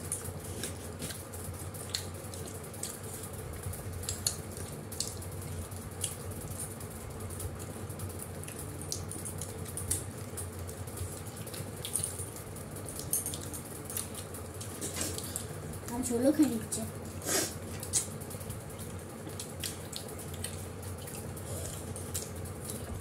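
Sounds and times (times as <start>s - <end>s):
fingers picking at food: 0.0s - 6.8s, 17.7s - 23.0s
wet chewing and lip smacks: 0.0s - 15.6s, 17.0s - 23.0s
steady low hum: 0.0s - 23.0s.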